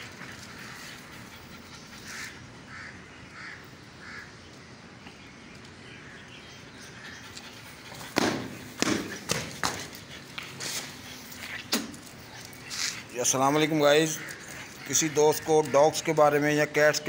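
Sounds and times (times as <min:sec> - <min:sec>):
outdoor background noise: 0:00.0 - 0:17.0
sharp thump: 0:08.1 - 0:09.8.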